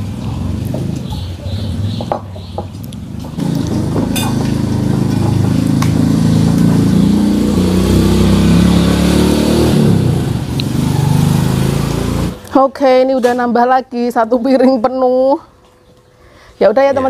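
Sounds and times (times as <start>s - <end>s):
vehicle engine running: 0.0s - 12.5s.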